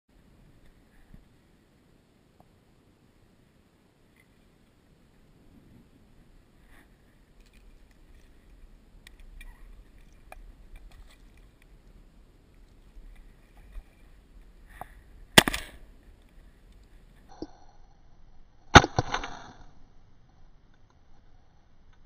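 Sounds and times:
rustling: 4.0 - 17.3
faint clicks: 6.7 - 17.6
shotgun shot: 15.4 - 15.8.

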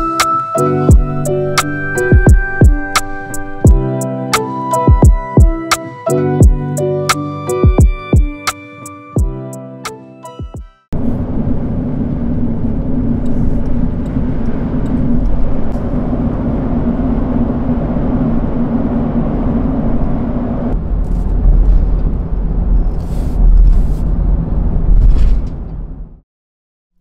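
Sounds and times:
tyre and engine noise: 11.0 - 25.9.

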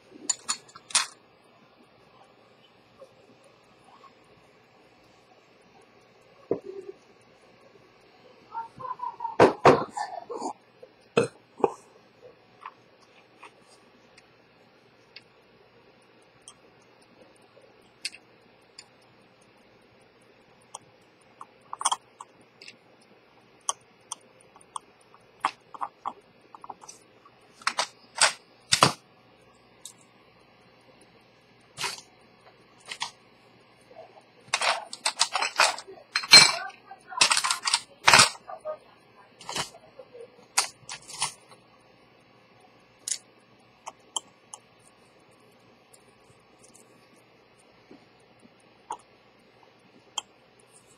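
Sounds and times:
watch parts clicking and tapping: 0.2 - 1.2, 20.6 - 22.8, 23.6 - 29.0, 29.8 - 30.1, 31.8 - 33.2, 34.5 - 38.5, 39.4 - 39.8, 40.5 - 41.6, 43.0 - 47.7.

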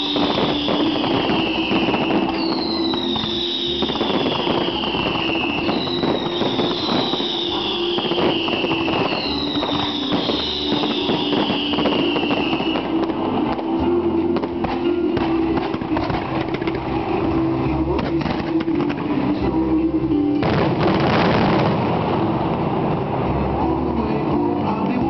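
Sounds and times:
descending whistling tone: 0.0 - 13.0
fireworks bangs: 0.0 - 19.4, 20.4 - 23.6
fireworks crackling: 0.0 - 25.0
music: 0.0 - 25.0.

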